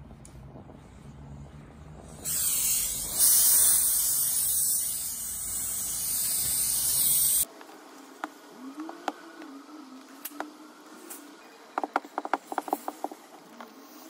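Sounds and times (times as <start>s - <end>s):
steady low hum: 0.0s - 14.0s
garment steamer hissing: 2.1s - 7.5s.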